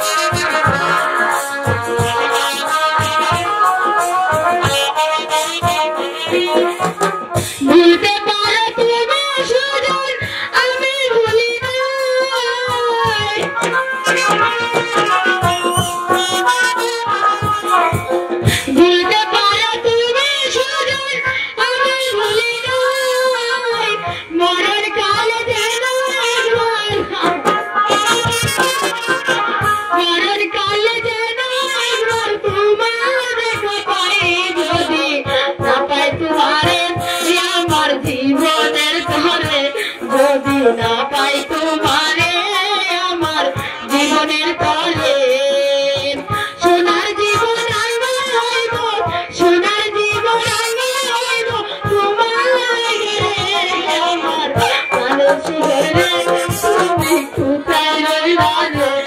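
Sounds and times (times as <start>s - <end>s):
drum strokes: 0.0s - 59.0s
instrumental accompaniment: 0.0s - 59.0s
woman singing into microphone: 0.0s - 59.0s.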